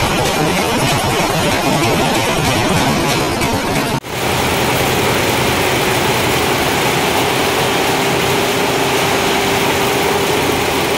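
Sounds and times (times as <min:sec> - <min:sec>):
embroidery machine whirring: 0:04.0 - 0:10.9.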